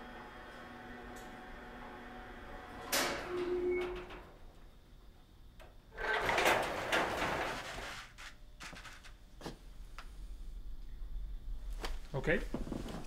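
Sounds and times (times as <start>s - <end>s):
door opening: 1.0s - 4.5s, 5.6s - 9.2s.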